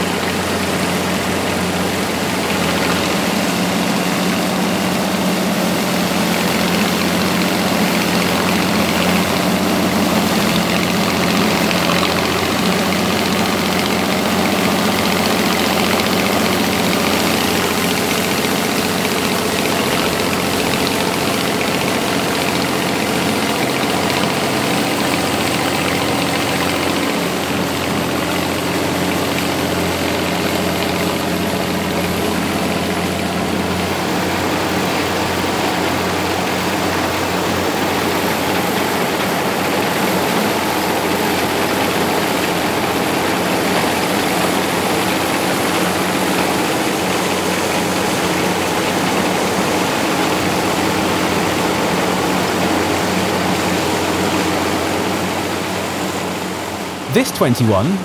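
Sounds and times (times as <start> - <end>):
tractor engine running: 0.0 - 34.9
combine harvester engine running: 0.0 - 46.2.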